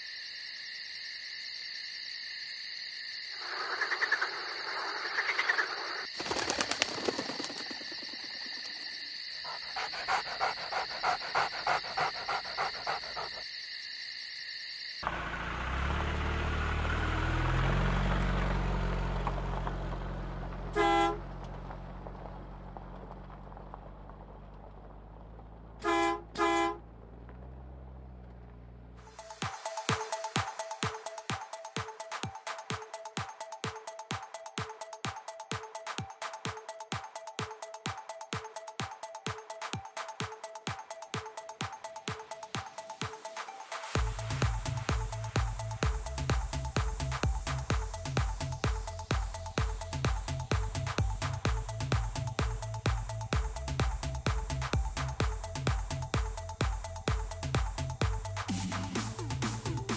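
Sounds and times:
crickets chirring: 0:00.0 - 0:15.2, 0:17.3 - 0:54.5
vehicle engine rumble: 0:15.0 - 0:29.4, 0:44.0 - 0:59.9
car horn toots: 0:20.7 - 0:21.4, 0:25.8 - 0:26.9.

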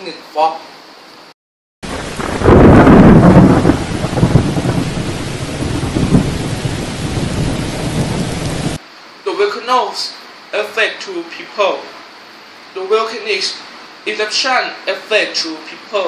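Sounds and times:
steady hiss of rain: 0:00.0 - 0:16.0
roll of thunder: 0:01.8 - 0:08.8.

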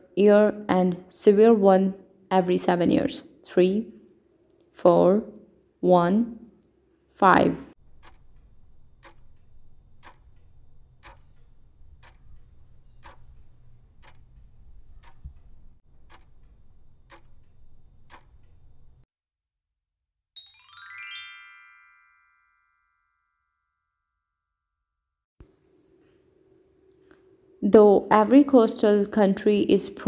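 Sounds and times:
clock ticking: 0:07.7 - 0:19.1
rising chime notes: 0:20.4 - 0:24.0.

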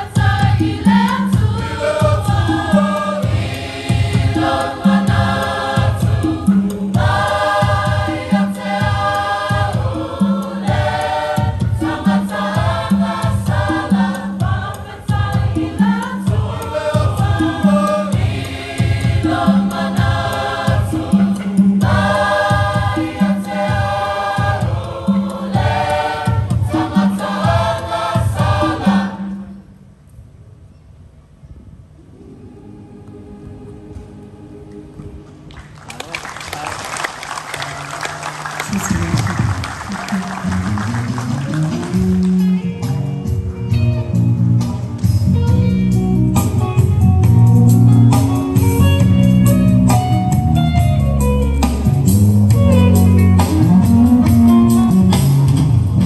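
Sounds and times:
steady beat: 0:00.0 - 0:29.4, 0:38.4 - 0:45.7
choir singing a carol: 0:00.0 - 0:29.7, 0:32.0 - 0:35.5.

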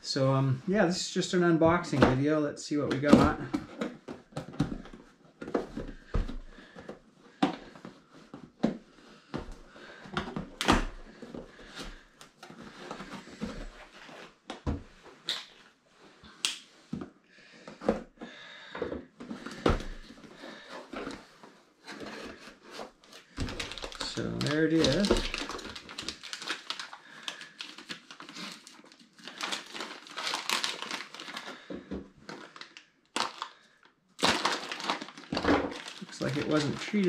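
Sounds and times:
cardboard box rustling: 0:27.6 - 0:31.4, 0:34.2 - 0:37.0.

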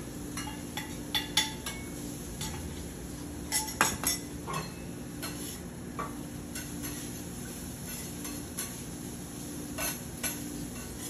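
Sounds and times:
food sizzling: 0:00.0 - 0:11.0
metal utensil scraping griddle: 0:04.5 - 0:05.7, 0:06.5 - 0:11.0.

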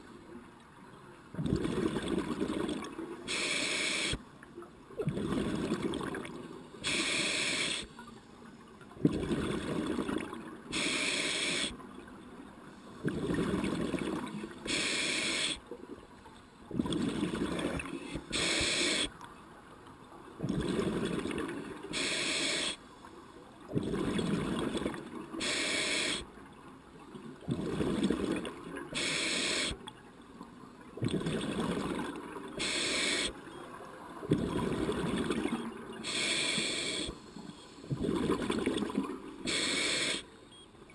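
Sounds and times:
exhaled air bubbling: 0:01.3 - 0:04.2, 0:04.9 - 0:07.9, 0:09.0 - 0:11.8, 0:13.0 - 0:15.6, 0:16.7 - 0:19.2, 0:20.3 - 0:22.8, 0:23.7 - 0:26.3, 0:27.3 - 0:29.8, 0:31.0 - 0:33.4, 0:34.2 - 0:37.2, 0:37.8 - 0:40.2
diver breathing through regulator: 0:03.3 - 0:04.2, 0:06.8 - 0:07.9, 0:10.7 - 0:11.8, 0:14.7 - 0:15.6, 0:18.3 - 0:19.1, 0:21.9 - 0:22.8, 0:25.4 - 0:26.3, 0:29.0 - 0:29.8, 0:32.6 - 0:33.4, 0:36.0 - 0:37.6, 0:39.4 - 0:40.3.

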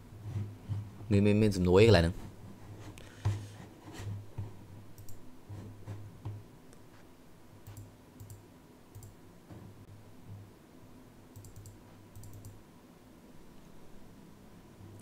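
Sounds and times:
faint computer clicks: 0:05.0 - 0:05.2, 0:07.6 - 0:09.2, 0:11.3 - 0:12.6.

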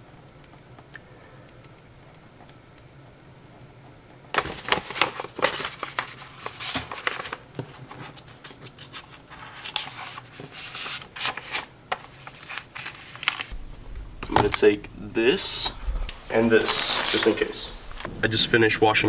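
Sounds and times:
paper card and envelope rustling: 0:04.3 - 0:13.6, 0:15.2 - 0:18.1.

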